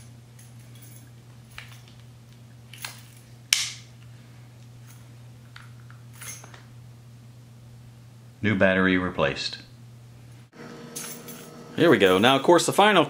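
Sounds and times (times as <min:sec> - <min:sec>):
sharp plastic snap: 0:03.5 - 0:03.8.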